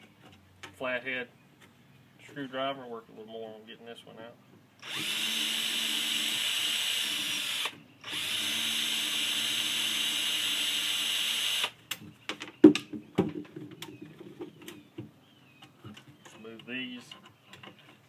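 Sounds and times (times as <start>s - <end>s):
cordless drill spinning: 4.8s - 11.8s.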